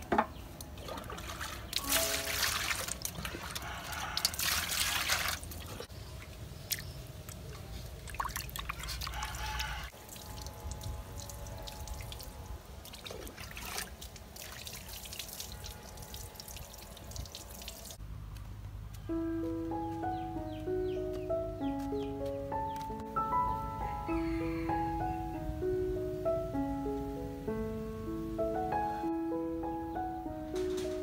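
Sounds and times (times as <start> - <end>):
water splashing in a metal basin: 0.6 - 18.0.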